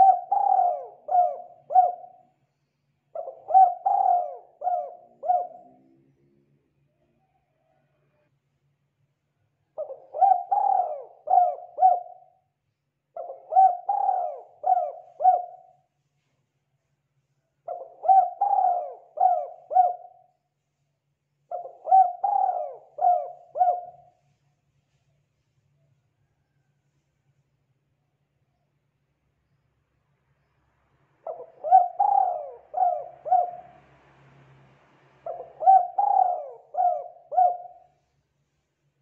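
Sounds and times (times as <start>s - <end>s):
dove cooing: 0.0s - 2.3s, 3.1s - 6.0s, 9.8s - 12.4s, 13.2s - 15.9s, 17.6s - 20.3s, 21.5s - 24.2s, 31.3s - 33.9s, 35.2s - 38.1s.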